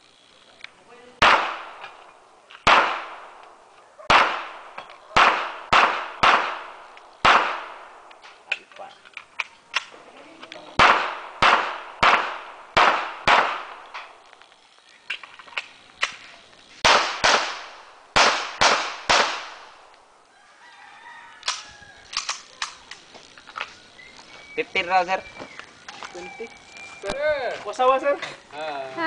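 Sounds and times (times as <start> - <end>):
pistol shots: 1.2 - 8.2, 10.8 - 14.2, 16.8 - 19.9.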